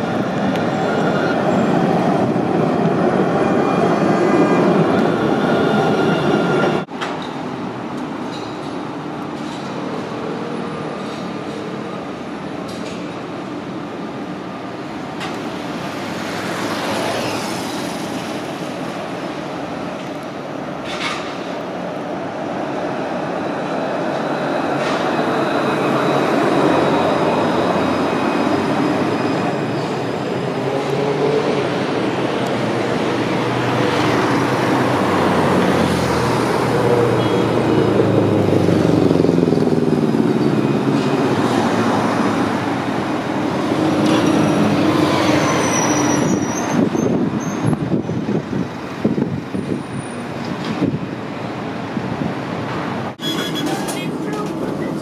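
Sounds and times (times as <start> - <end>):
tram wheel squeals: 0.0 - 2.4, 3.1 - 6.9, 24.6 - 31.1, 36.8 - 37.8, 43.8 - 48.2, 53.2 - 55.0
tram wheels rumbling: 0.0 - 55.0.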